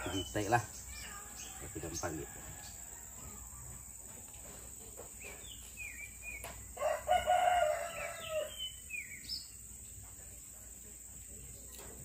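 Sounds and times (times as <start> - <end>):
rooster crowing: 1.4 - 3.9, 6.7 - 8.6.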